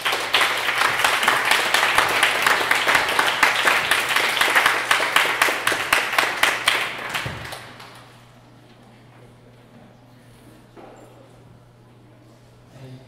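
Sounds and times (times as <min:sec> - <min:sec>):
person clapping close by: 0:00.0 - 0:08.1
audience applauding: 0:00.0 - 0:08.2.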